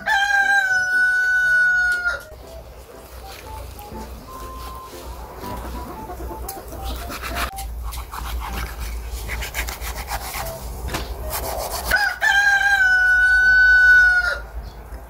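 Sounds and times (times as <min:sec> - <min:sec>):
rooster crowing: 0:00.0 - 0:02.3, 0:11.9 - 0:14.5
knife cutting raw chicken: 0:06.8 - 0:12.2.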